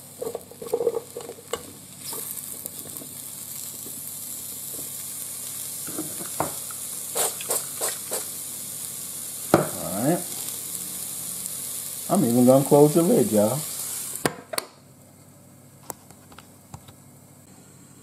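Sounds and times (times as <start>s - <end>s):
mushrooms sizzling in oil: 0.0s - 14.6s.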